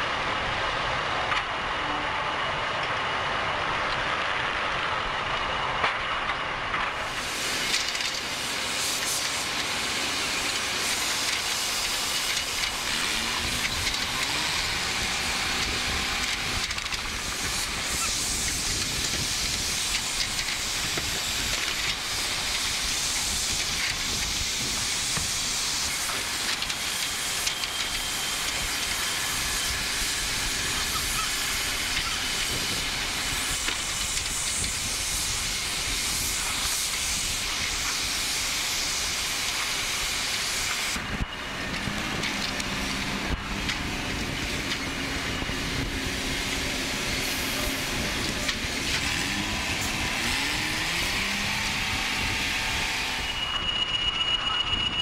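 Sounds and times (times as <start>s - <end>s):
low engine hum: 0.0s - 25.6s, 40.6s - 53.3s
steady hissing machine noise: 0.0s - 54.1s.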